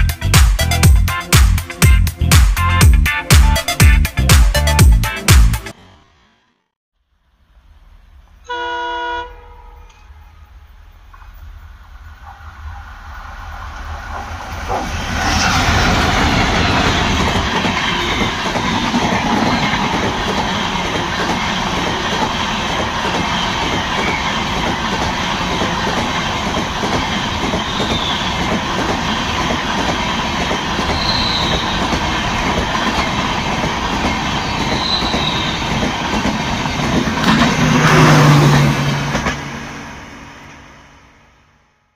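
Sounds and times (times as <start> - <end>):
train wheels rumbling on rails: 9.8 - 41.3
high wheel squeals: 27.6 - 28.5, 30.8 - 32.1, 34.1 - 36.0.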